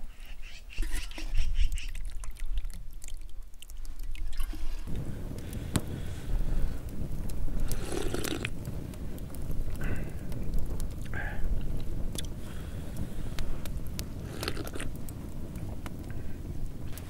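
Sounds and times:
liquid pouring: 1.9 - 5.0, 7.7 - 8.5
person sipping broth: 1.9 - 5.0, 7.6 - 8.6, 14.2 - 15.0
wind rumble on microphone: 3.8 - 17.0.

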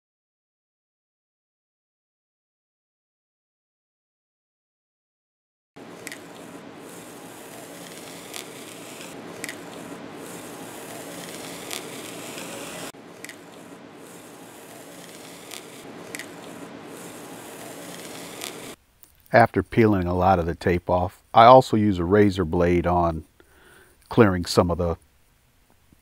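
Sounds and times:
tape peeling: 5.8 - 19.4
small clicks: 6.0 - 6.4, 7.5 - 13.6, 14.7 - 19.3.

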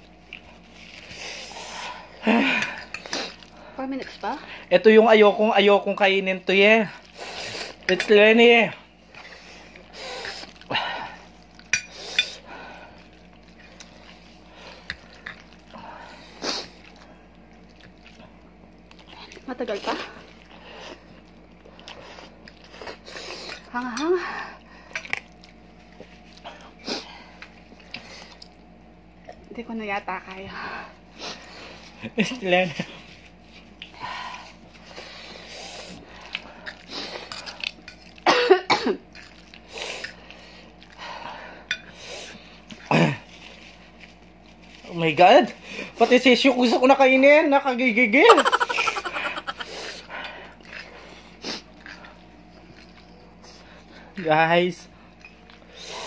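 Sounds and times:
noodles slurped and chewed: 33.5 - 38.2, 39.1 - 41.0, 48.7 - 54.0
person coughing: 38.2 - 39.0, 48.3 - 49.7.

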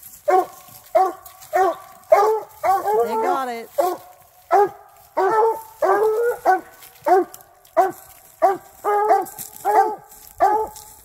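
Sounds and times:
hounds barking: 0.2 - 11.0.

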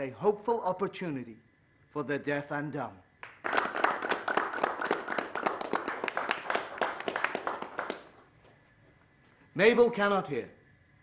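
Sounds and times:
people applauding: 3.2 - 8.3.

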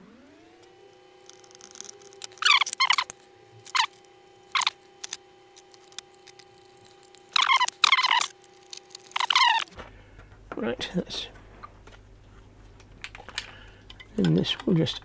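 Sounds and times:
screws squeaking: 1.2 - 9.8.

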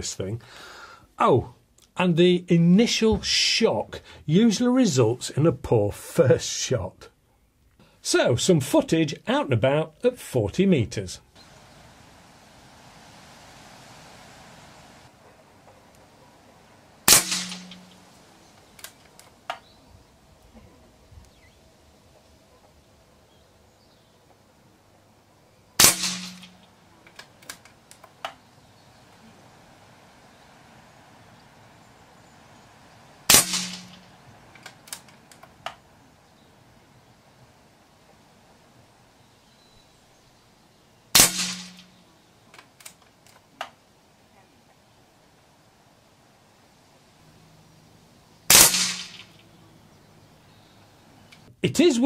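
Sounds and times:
air rifle shot: 17.0 - 18.2, 25.8 - 26.6, 33.3 - 34.2, 41.2 - 42.0, 48.5 - 49.4.

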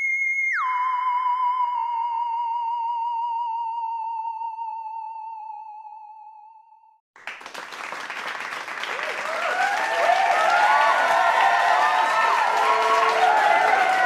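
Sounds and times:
applause: 7.2 - 14.0.

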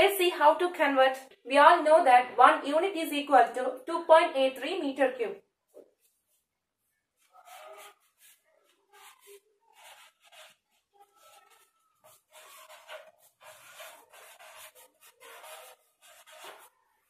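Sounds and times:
marker scratching on whiteboard: 5.7 - 17.0
marker squeak: 7.2 - 16.7.

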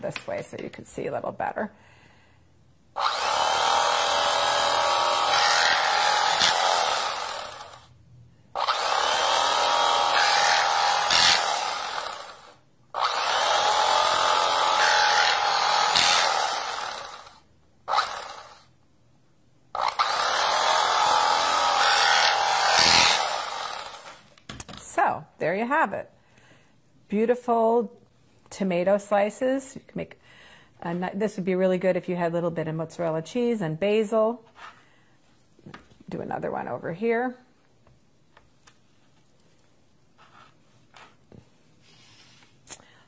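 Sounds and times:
electric knife motor running: 3.0 - 7.9, 8.6 - 18.7, 19.8 - 24.3
serrated blade sawing tomato: 8.6 - 12.4, 13.0 - 17.3, 19.8 - 24.2.

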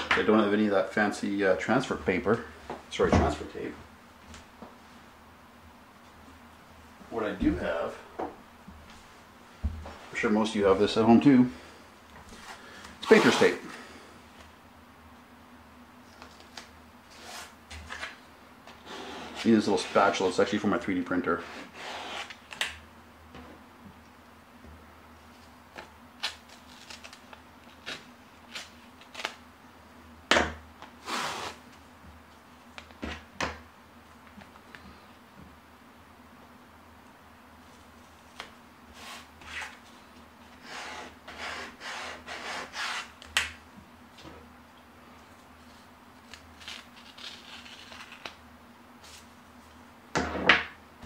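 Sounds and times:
tape crackling rustle: 25.2 - 29.5, 45.0 - 49.8.

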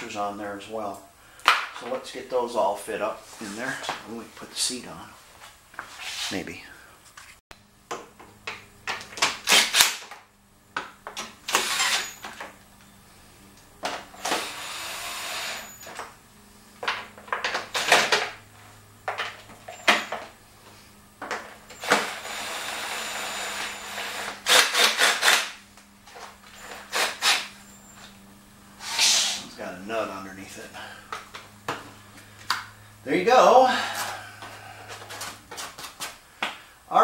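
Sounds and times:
parts knocking and clanking: 7.9 - 12.9, 13.8 - 14.5, 16.8 - 22.3, 31.0 - 32.8
cordless drill driving bolts: 8.9 - 10.2, 11.1 - 12.6, 13.8 - 16.1, 17.3 - 18.4, 21.6 - 25.6, 26.2 - 28.1.

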